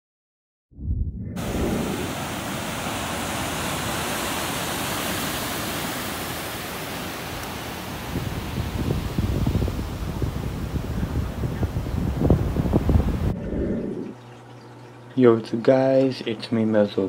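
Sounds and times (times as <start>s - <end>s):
wind buffeting microphone: 0.7s - 3.3s, 8.0s - 14.2s
ocean surf breaking on beach: 1.4s - 13.4s.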